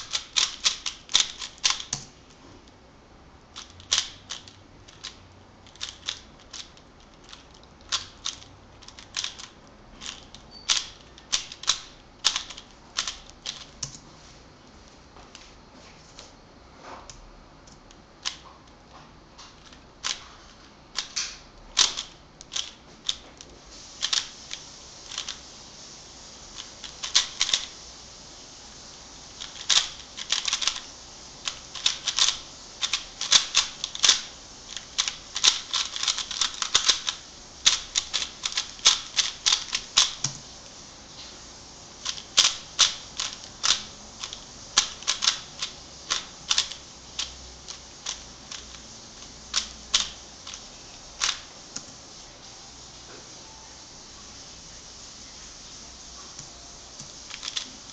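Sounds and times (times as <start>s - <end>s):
puzzle cube plastic clicks: 0.0s - 2.1s, 3.6s - 14.0s, 20.9s - 24.3s, 26.6s - 27.7s, 29.4s - 30.8s, 31.4s - 40.5s, 42.0s - 48.8s, 49.5s - 50.6s, 57.0s - 57.9s.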